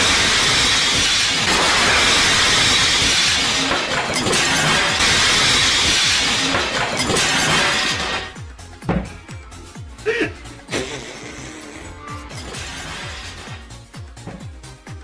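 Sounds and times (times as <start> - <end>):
glass breaking: 0.0 - 8.5, 12.3 - 13.8
household objects falling: 0.0 - 9.2, 12.3 - 14.5
wooden shelving crashing and clattering: 0.0 - 9.2, 12.4 - 14.4.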